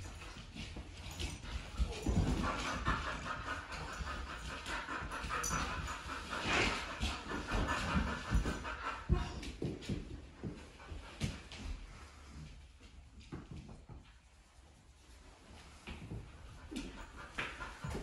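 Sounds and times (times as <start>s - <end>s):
dog panting: 0.1s - 12.4s, 15.9s - 18.0s.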